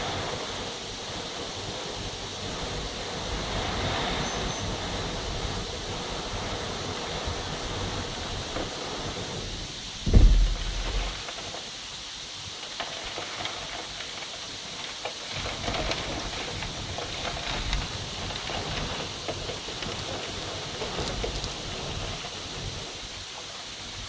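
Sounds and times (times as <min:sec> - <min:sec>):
wind rumbling on microphone: 0:00.0 - 0:11.6, 0:15.3 - 0:23.0
heavy rain hissing: 0:00.0 - 0:24.0
loud low thump: 0:10.0 - 0:11.2.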